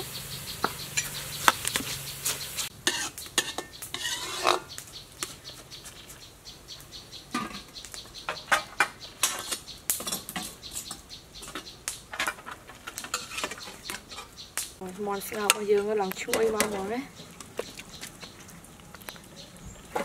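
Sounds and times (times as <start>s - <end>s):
light sizzle: 0.0s - 20.0s
metal ladle scraping a wok: 0.6s - 4.7s, 12.2s - 14.4s.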